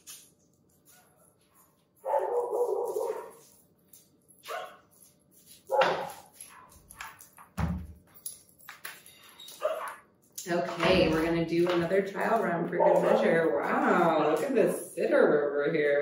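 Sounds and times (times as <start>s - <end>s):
dog barking: 2.0s - 3.4s, 4.4s - 4.8s, 5.7s - 7.2s, 9.6s - 10.0s, 12.8s - 13.4s.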